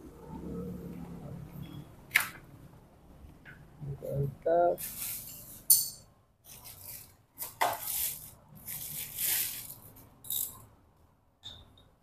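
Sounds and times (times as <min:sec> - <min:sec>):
tools scraping: 0:04.8 - 0:10.7
metal clink: 0:05.7 - 0:06.1.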